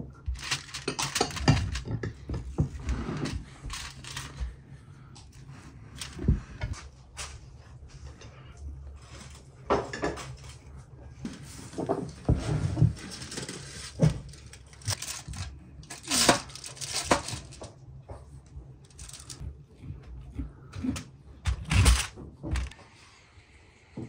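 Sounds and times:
foil crinkling: 13.0s - 17.7s, 18.9s - 19.4s.

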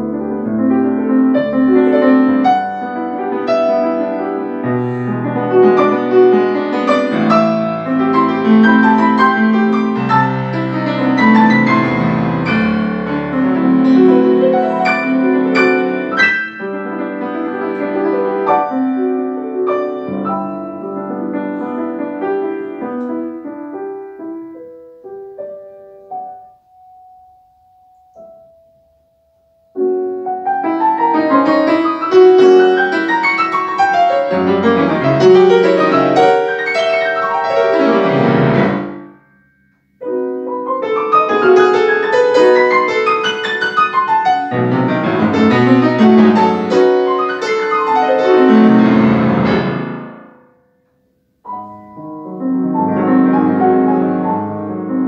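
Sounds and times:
grand piano playing: 0.0s - 29.0s, 29.7s - 50.4s, 51.4s - 55.0s.

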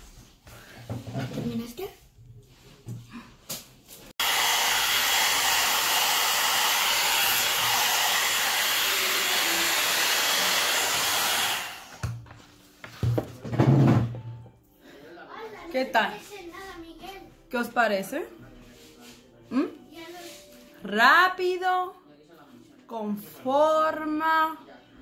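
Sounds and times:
hot air brush blowing: 4.2s - 12.0s.

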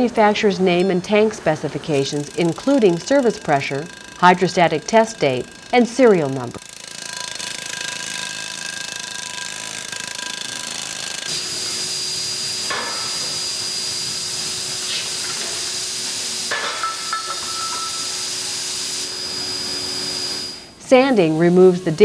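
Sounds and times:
factory machine hum and hiss: 11.1s - 22.0s.

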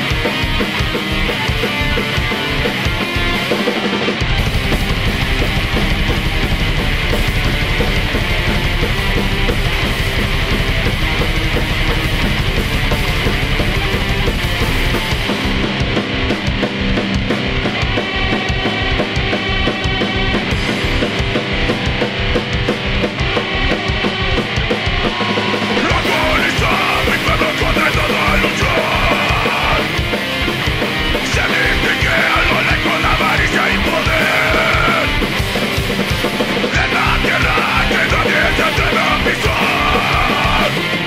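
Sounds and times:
heavy rock band music: 0.0s - 41.0s.

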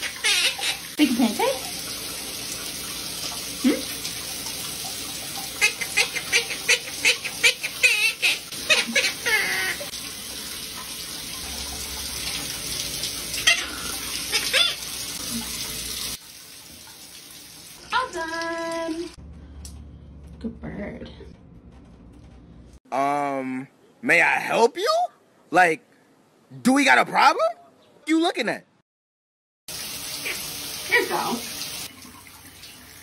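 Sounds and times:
parrot squawking: 0.0s - 1.0s, 5.5s - 9.9s, 13.4s - 15.0s
shower spray running: 0.0s - 19.2s, 29.7s - 33.0s.

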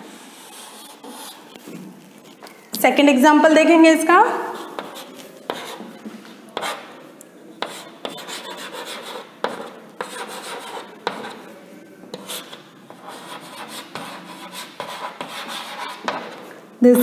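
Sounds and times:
chalk scratching on blackboard: 0.0s - 2.4s, 4.5s - 7.0s, 7.6s - 11.5s, 12.1s - 16.5s
chalk taps: 4.5s - 7.0s, 7.6s - 16.6s.

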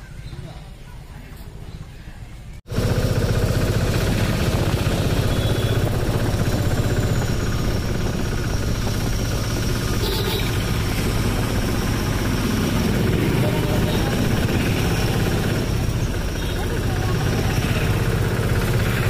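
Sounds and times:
vehicle engine pulsing: 2.7s - 19.0s.

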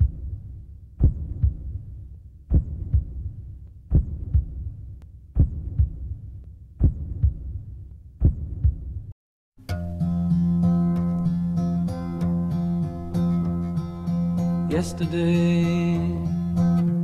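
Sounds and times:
heartbeat thumps: 0.0s - 9.1s.

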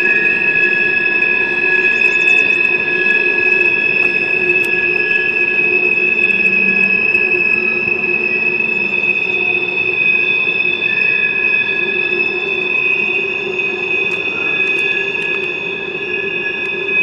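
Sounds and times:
train wheels squealing on rail: 0.0s - 17.0s
train wheels rolling: 8.2s - 17.0s.

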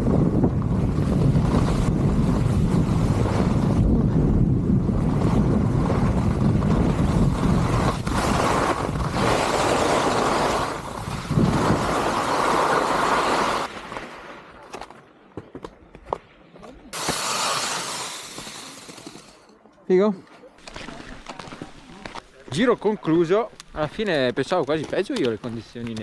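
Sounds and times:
wind rushing over microphone: 0.0s - 13.7s
skis scraping over snow: 0.0s - 14.6s, 16.9s - 19.5s, 20.6s - 26.0s.

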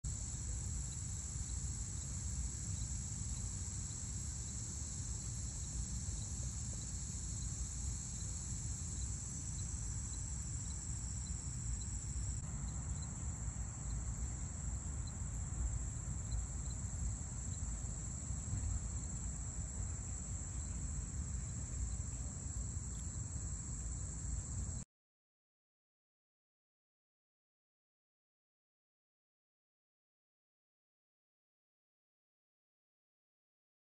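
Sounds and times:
insect chorus drone: 0.1s - 24.8s.

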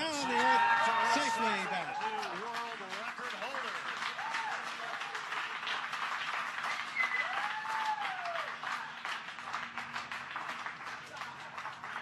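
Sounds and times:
whooping shout: 0.0s - 2.3s, 4.2s - 4.9s, 7.0s - 8.9s
crowd applauding and cheering: 0.0s - 12.0s.

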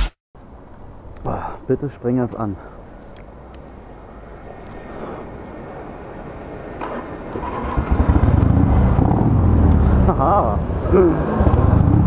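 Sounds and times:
motorcycle engine rumbling: 2.4s - 12.0s.

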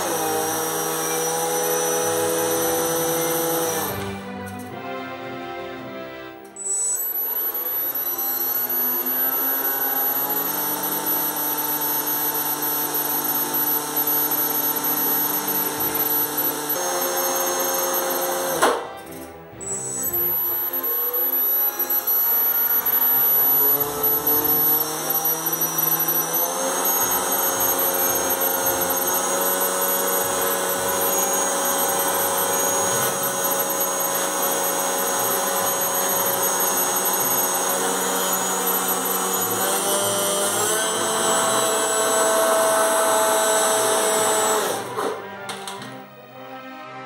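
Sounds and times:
electric motor and propeller whine: 0.0s - 4.8s, 6.7s - 45.9s.

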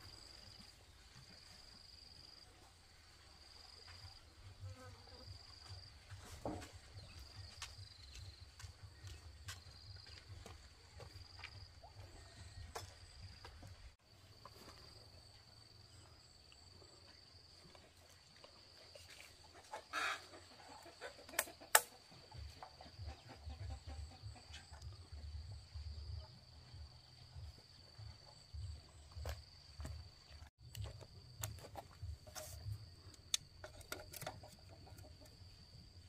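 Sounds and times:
chicken clucking: 19.1s - 25.2s, 34.3s - 35.7s.

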